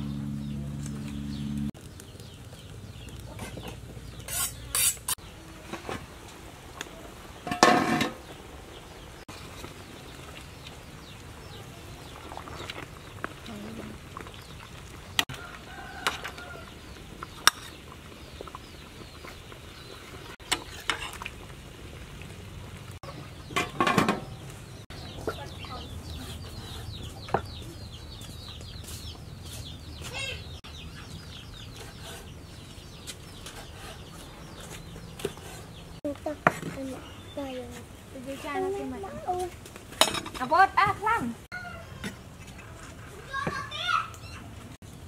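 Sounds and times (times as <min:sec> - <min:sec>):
chickens clucking: 0:23.0 - 0:37.0.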